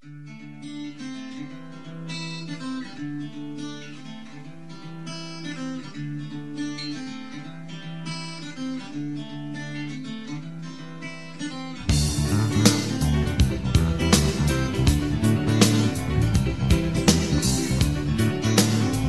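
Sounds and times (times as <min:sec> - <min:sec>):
acoustic guitar picked melody: 0:00.0 - 0:19.0
repeating bass line: 0:11.9 - 0:19.0.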